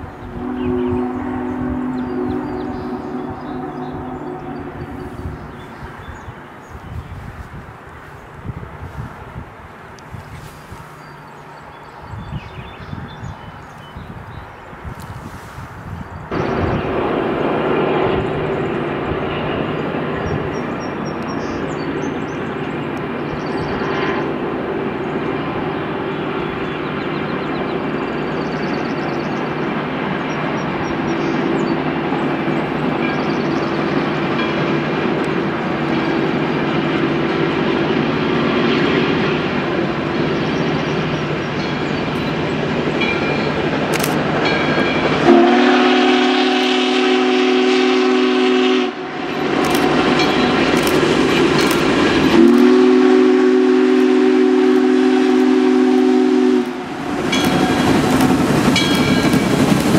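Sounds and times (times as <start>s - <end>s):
steam locomotive exhaust rushing: 0.0s - 13.4s, 14.0s - 59.9s
steam whistle blowing: 0.2s - 5.8s, 45.2s - 50.2s, 52.3s - 58.0s.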